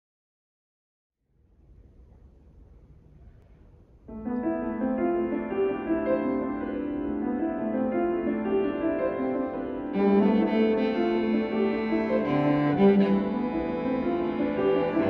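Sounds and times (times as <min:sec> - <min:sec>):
soft piano chords: 0:02.7 - 0:15.0
bowed cello: 0:09.9 - 0:15.0.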